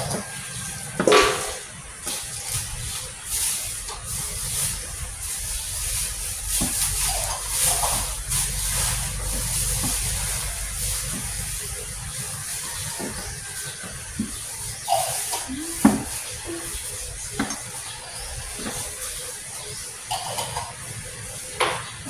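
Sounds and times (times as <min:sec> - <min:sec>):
plastic bag rustling: 0:00.0 - 0:22.0
steady hiss: 0:00.0 - 0:22.0.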